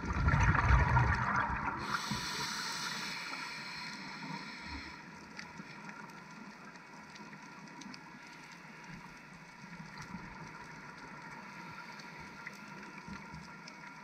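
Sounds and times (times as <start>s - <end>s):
faint crackles and clicks: 0.0s - 14.0s
steady underwater hiss: 1.0s - 14.0s.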